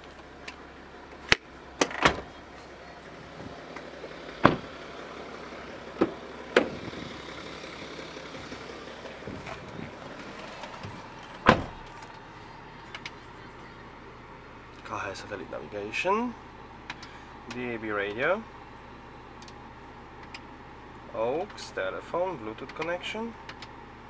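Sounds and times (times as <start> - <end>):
car doors knocking and thudding: 4.4 - 4.8, 6.0 - 7.1, 9.1 - 12.1.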